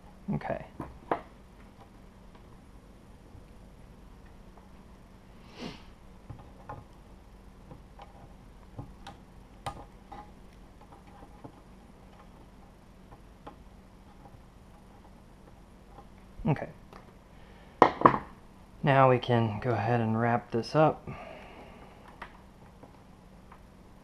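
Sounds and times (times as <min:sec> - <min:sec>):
faint steady hum: 0:00.0 - 0:24.0
breathy noise: 0:21.0 - 0:22.3.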